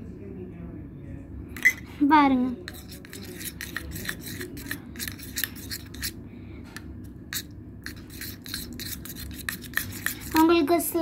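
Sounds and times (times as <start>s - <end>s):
metal spoon stirring slime in cup: 1.6s - 6.2s, 7.3s - 11.0s.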